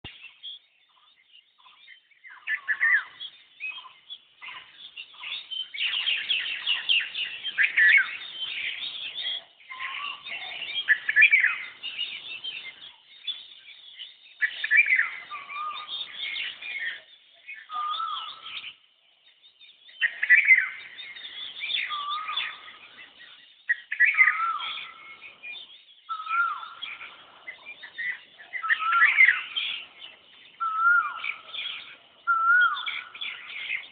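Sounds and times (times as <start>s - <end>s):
birds chirping and calling: 0.0s - 33.9s.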